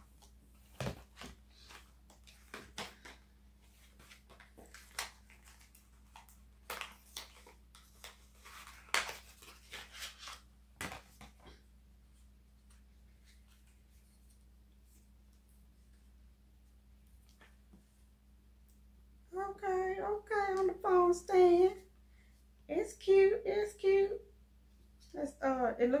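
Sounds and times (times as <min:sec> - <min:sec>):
objects and packaging handled: 0:00.0 - 0:16.0.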